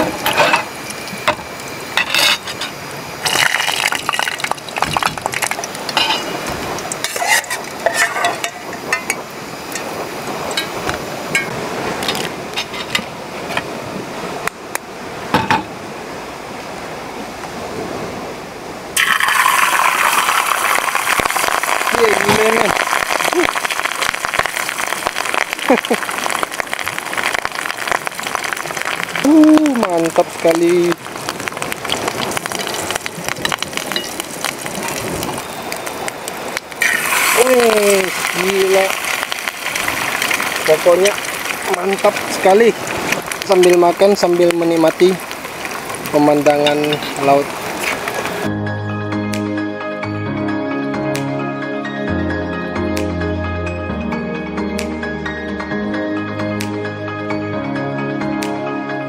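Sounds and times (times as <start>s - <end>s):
egg sizzling in pot: 0.0s - 9.9s, 19.0s - 48.5s
hot oil crackling and spitting: 0.0s - 13.1s, 19.0s - 48.5s.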